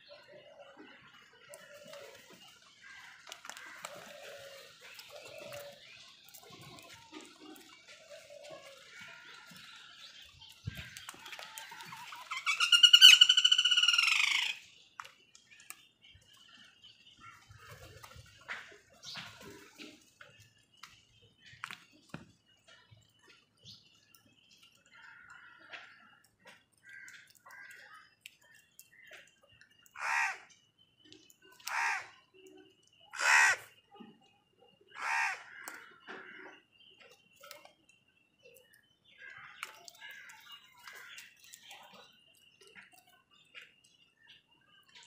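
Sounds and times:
crows cawing: 26.8 - 27.8, 30.0 - 30.5, 31.6 - 32.1, 33.1 - 33.7, 35.0 - 36.5.

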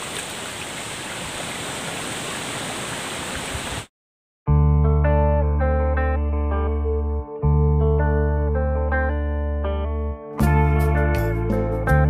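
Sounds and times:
creek water rushing: 0.0 - 3.9
plucked guitar music: 4.5 - 12.0.

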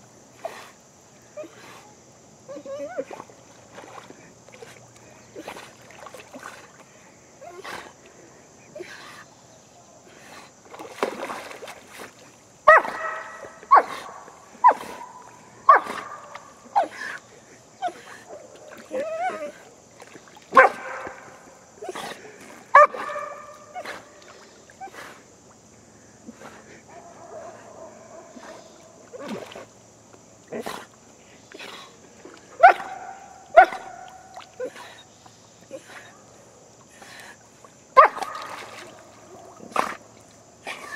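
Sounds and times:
dog barking: 12.7 - 16.9, 20.6 - 21.3, 22.7 - 24.0, 26.9 - 29.0, 32.6 - 34.2, 38.0 - 38.6.

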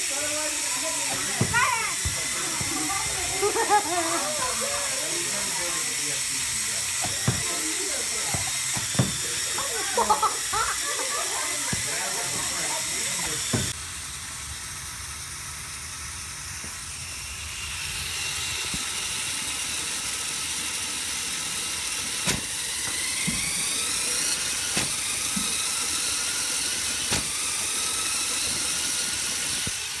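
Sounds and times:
flywheel motor whine: 0.0 - 30.0
balls fired sharp clacks: 1.0 - 3.2, 7.0 - 9.6, 27.1 - 27.4.

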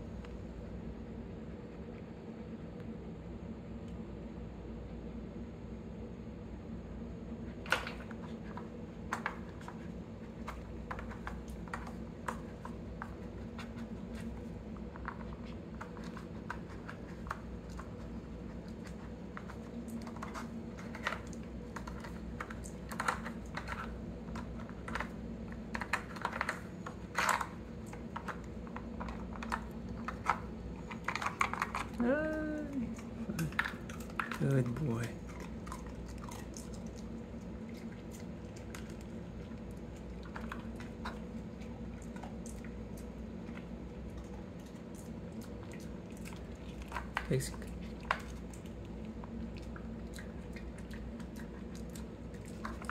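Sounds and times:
plastic pieces clicking and clattering: 28.2 - 32.4.

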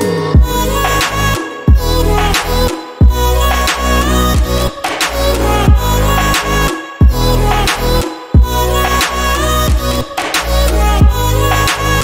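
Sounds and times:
background music with beat: 0.0 - 12.0
deep bass hit: 0.4 - 10.0.

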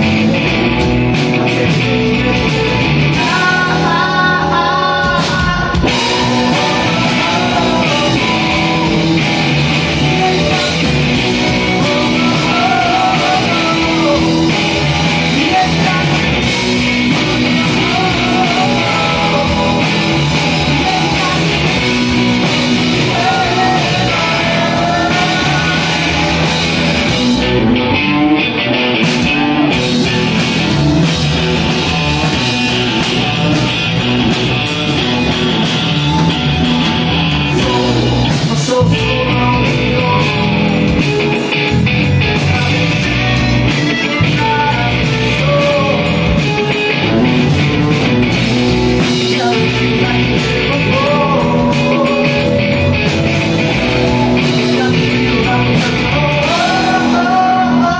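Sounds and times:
live rock band playing: 0.0 - 57.9
man singing: 1.1 - 27.5, 37.3 - 48.0, 48.9 - 57.9.

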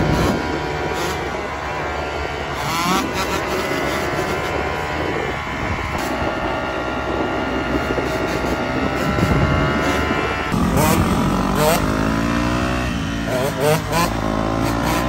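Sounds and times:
dirt bike engine revving: 0.0 - 15.0.

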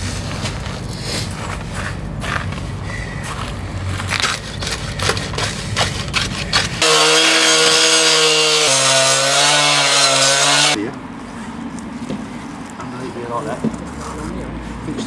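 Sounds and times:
saw disc cutting: 4.4 - 10.8
cut-off saw engine running: 6.8 - 10.8.

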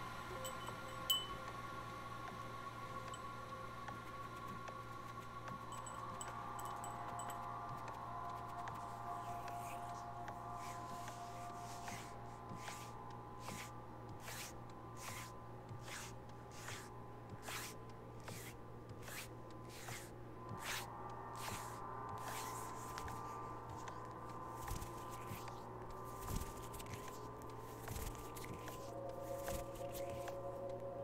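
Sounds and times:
ambient electronic music: 0.0 - 31.0
soft hissing swishes: 10.6 - 23.5.

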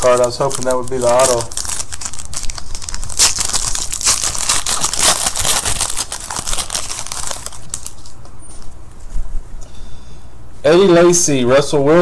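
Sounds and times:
foil wrapper tearing and crinkling: 0.0 - 8.2.

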